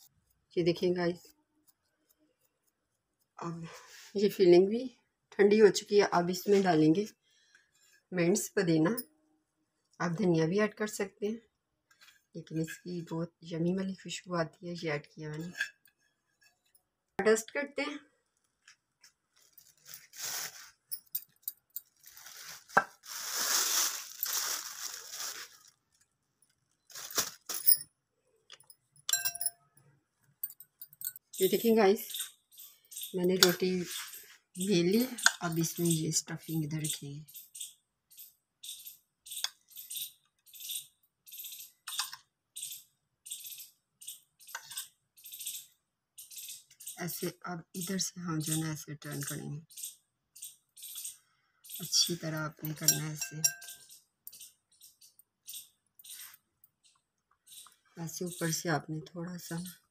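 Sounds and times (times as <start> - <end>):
dry rustling and scraping of flour: 19.3 - 20.9, 21.9 - 25.8.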